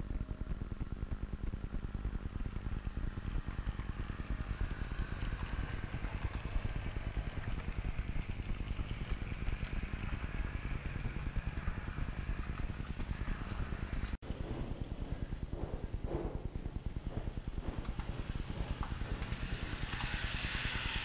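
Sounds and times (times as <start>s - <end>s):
faint high motor whine: 0.0s - 21.0s
model train wheels clattering: 15.6s - 21.0s.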